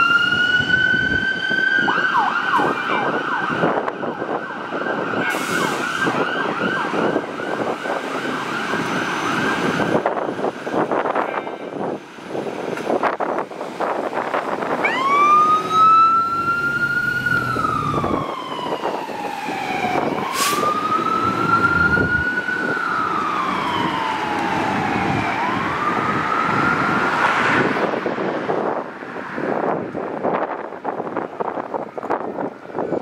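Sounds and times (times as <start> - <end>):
fire engine siren wailing: 0.0 - 12.4, 13.0 - 28.8, 30.2 - 33.0
short sharp siren burst: 5.2 - 8.0, 14.8 - 27.3.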